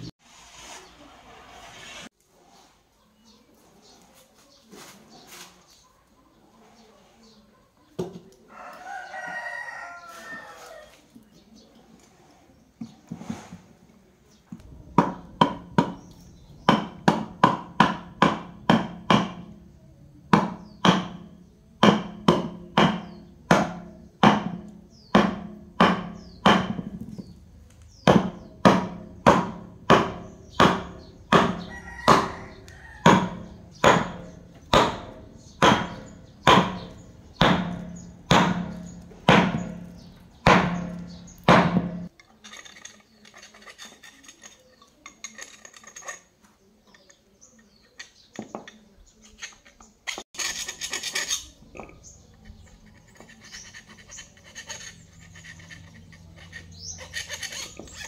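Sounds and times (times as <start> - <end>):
scraping and handling noises: 0.0 - 14.7, 38.8 - 58.0
loud rasp: 49.2 - 51.6, 52.2 - 58.0.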